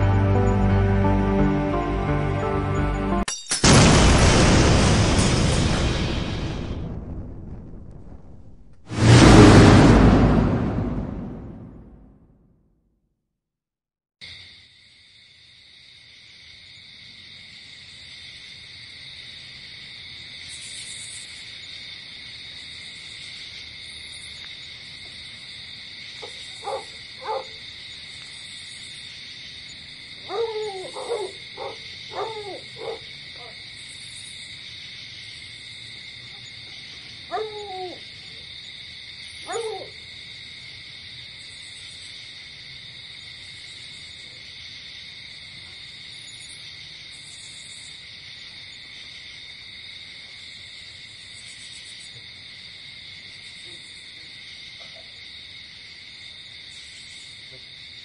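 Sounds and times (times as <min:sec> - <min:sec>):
insects chirring: 0:14.2 - 0:58.0.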